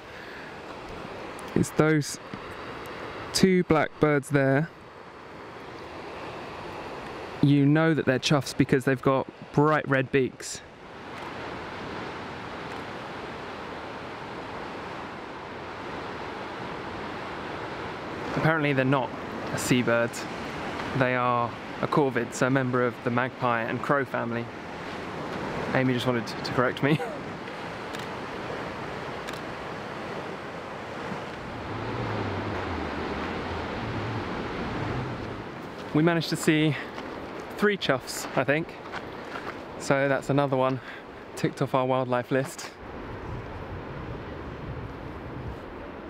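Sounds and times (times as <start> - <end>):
wind: 0.0 - 46.0
surf breaking on rocks: 23.2 - 38.5.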